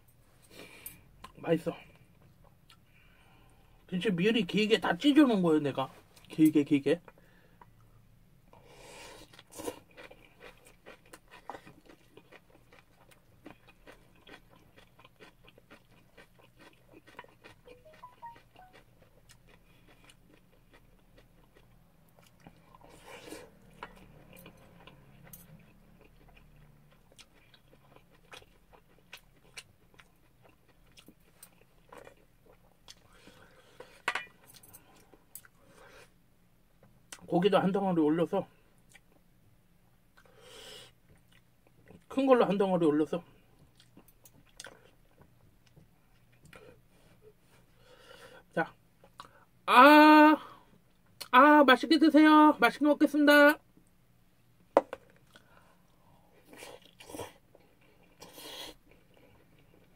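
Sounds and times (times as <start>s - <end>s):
person chewing food: 8.6s - 37.3s, 38.8s - 39.3s, 40.0s - 42.1s, 43.4s - 49.6s, 54.8s - 59.9s.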